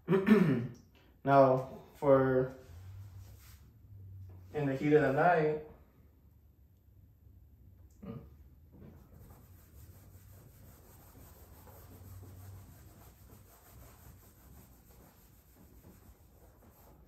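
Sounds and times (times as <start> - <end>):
eraser rubbing on whiteboard: 9.0 - 17.0.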